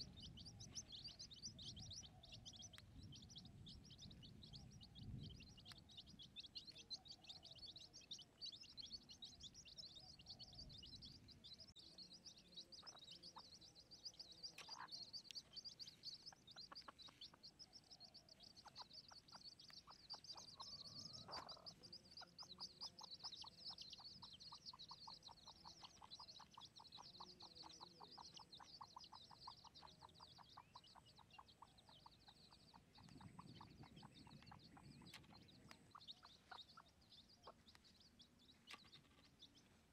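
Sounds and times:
high-pitched animal chirping: 20.1s - 35.0s.

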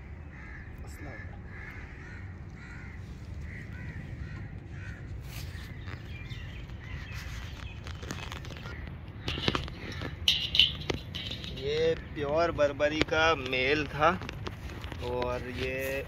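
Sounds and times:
bird calling: 0.0s - 13.9s
sharp knocks and rattles: 8.3s - 15.8s.

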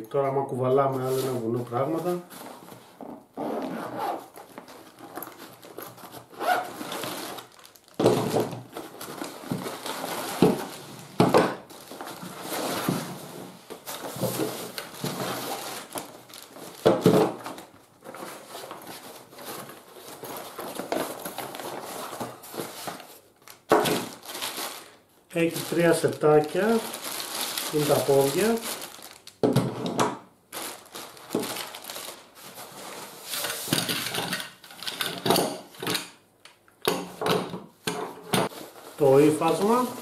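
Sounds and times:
nylon sack rustling: 1.0s - 10.8s, 24.0s - 29.3s, 30.5s - 33.4s, 38.5s - 40.0s
plastic bags crinkling: 4.0s - 13.0s, 13.8s - 29.6s, 30.5s - 34.1s, 38.5s - 40.0s.

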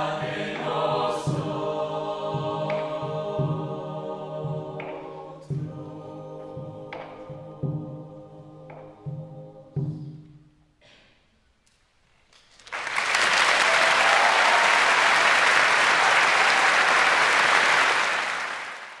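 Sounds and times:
audience applause: 12.6s - 19.0s.

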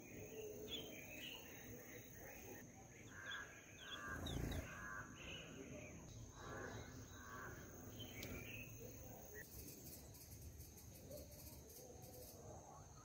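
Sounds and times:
bird chirps: 0.0s - 13.0s
harsh raspy bird calls: 3.0s - 5.5s.

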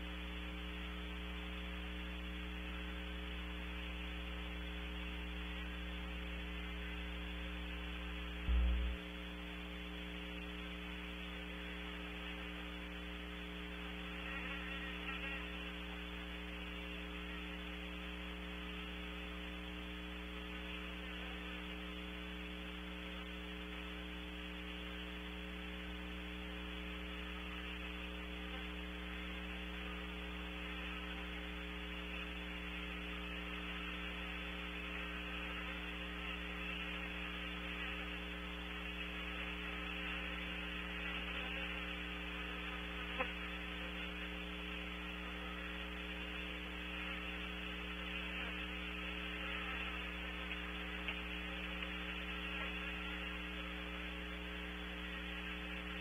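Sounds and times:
electrical mains hum with hiss: 0.0s - 56.0s
short low thump: 8.5s - 9.0s.

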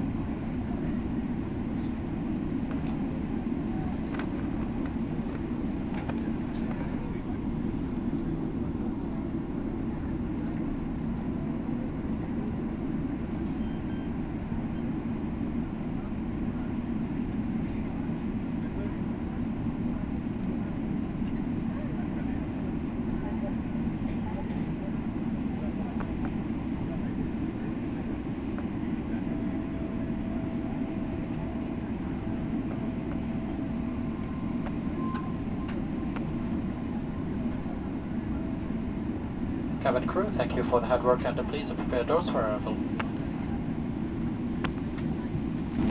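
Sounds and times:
faint steady hum: 0.0s - 45.9s
jet engines rumbling: 0.0s - 45.9s.

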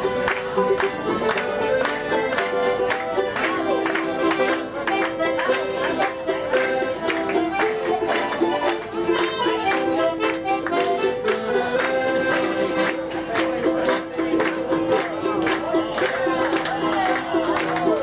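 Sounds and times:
accordion music: 0.0s - 18.0s.

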